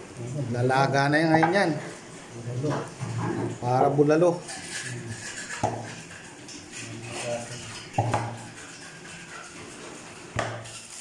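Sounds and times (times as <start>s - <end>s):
meat knocking against metal pot: 8.0s - 8.5s.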